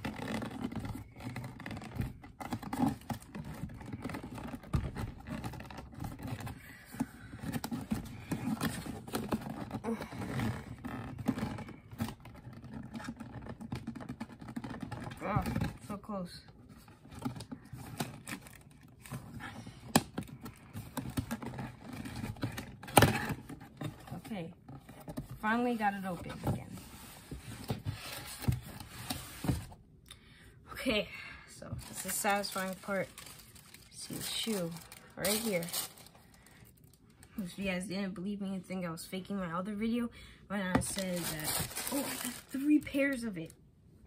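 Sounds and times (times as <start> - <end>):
fingers scraping cardboard box: 0.0 - 15.8.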